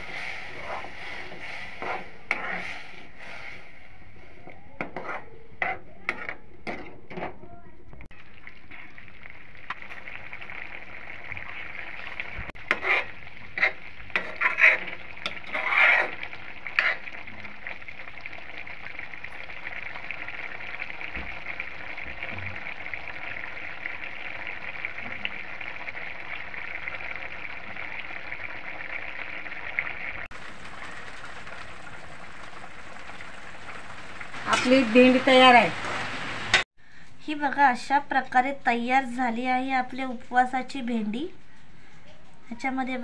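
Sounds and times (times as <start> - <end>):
gravy simmering and sizzling: 0.0 - 7.0, 8.0 - 36.8
metal ladle scraping pan: 0.0 - 7.4, 12.6 - 17.1.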